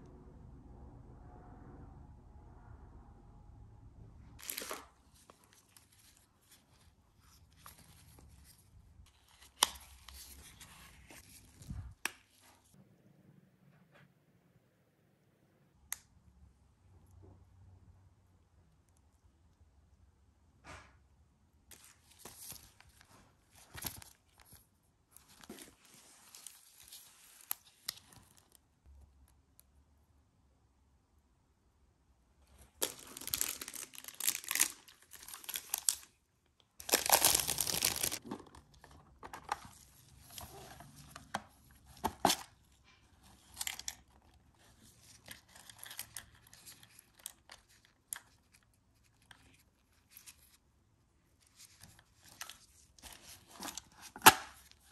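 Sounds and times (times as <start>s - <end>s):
plastic packaging crinkling and tearing: 4.4s - 6.6s, 32.6s - 36.2s, 36.8s - 38.3s.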